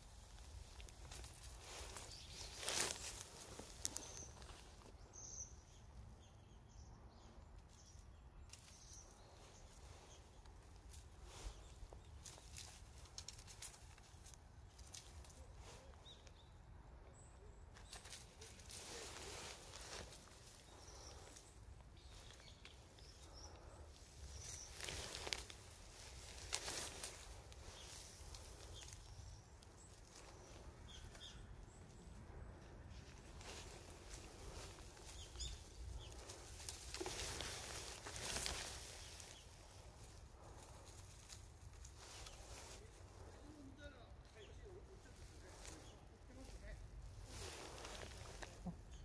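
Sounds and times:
faint outdoor background noise: 0.0 - 49.0
leaves and branches rustling: 0.0 - 49.0.

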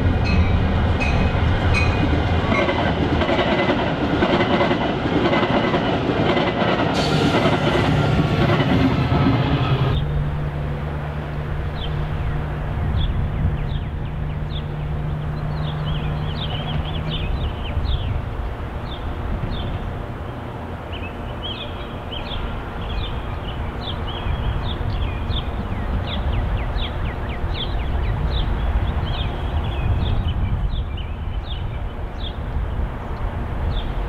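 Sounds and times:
train wheels clattering over rails: 0.0 - 10.0
distant train low drone: 0.0 - 34.0.

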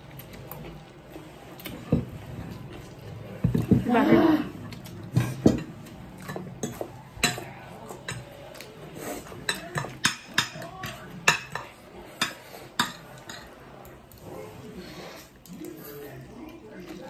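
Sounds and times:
cutlery clicking on plates: 9.3 - 13.5.

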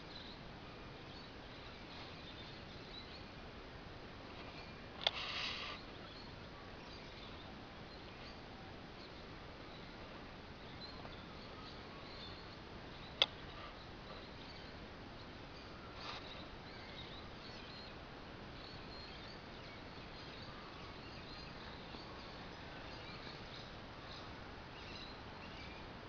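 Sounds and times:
birds chirping: 0.0 - 26.0
steady background hiss: 0.0 - 26.0
sharp click: 5.0 - 5.3.

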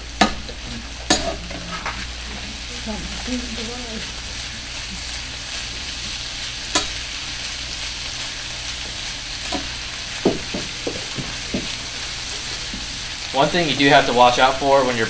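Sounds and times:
vegetables sizzling in skillet: 0.0 - 15.0
spatula stirring against pan: 0.2 - 13.4.

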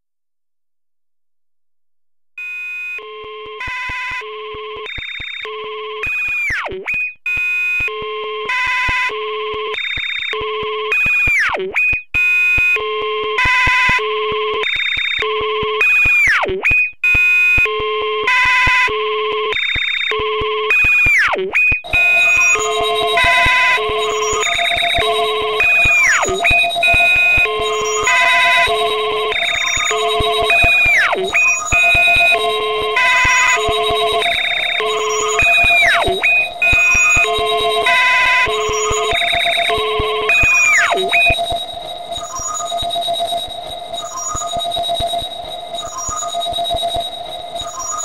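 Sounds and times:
synthesized beeps: 21.8 - 48.0.

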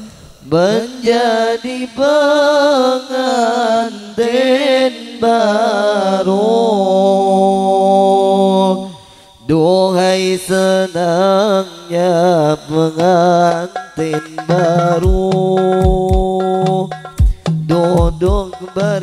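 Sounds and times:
man singing chant-like melody: 0.0 - 19.0.

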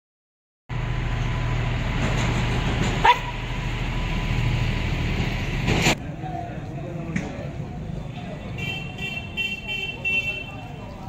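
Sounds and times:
low outdoor rumble: 0.7 - 8.4
dog barking: 3.0 - 3.3.

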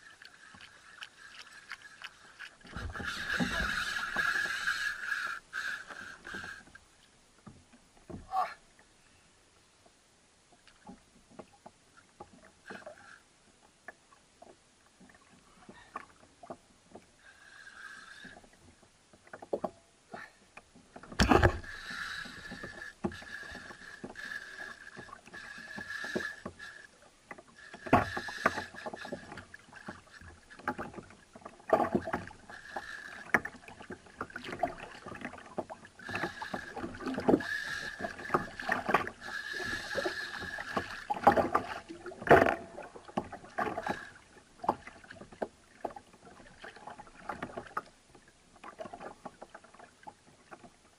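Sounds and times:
faint ticks: 0.0 - 8.2, 8.8 - 42.6, 43.2 - 46.0
fishing reel buzzing: 2.9 - 6.6, 21.5 - 26.9, 36.1 - 41.1.

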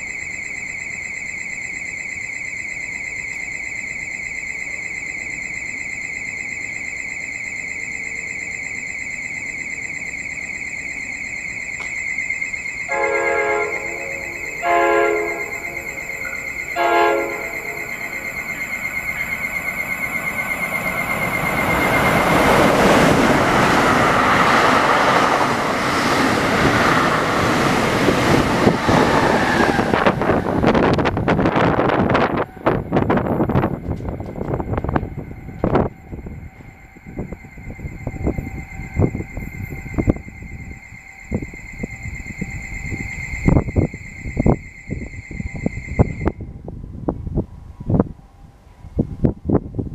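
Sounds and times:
pulsing electronic warning alarm: 0.0 - 46.8
train horn blasts: 12.9 - 18.6, 28.3 - 39.7
train wheels on rails rushing: 12.9 - 46.4.

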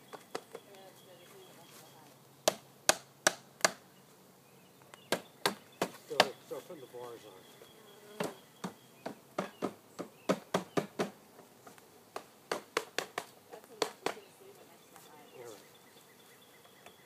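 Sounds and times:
honeybees buzzing: 0.0 - 17.0
taps and knocks on wood: 8.2 - 14.2.

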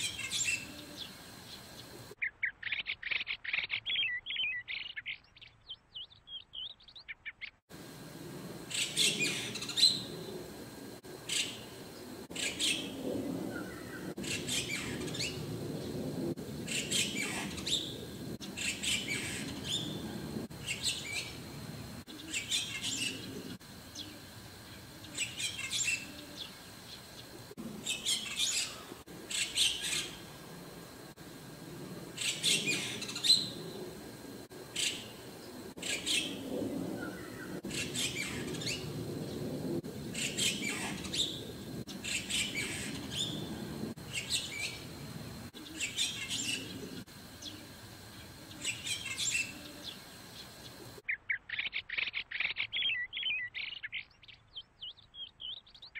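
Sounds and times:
starling chirping: 0.0 - 7.6, 8.7 - 16.0, 16.6 - 30.3, 32.2 - 33.8, 34.7 - 39.0, 40.1 - 55.9
low background rumble: 7.7 - 25.1, 26.0 - 45.8.

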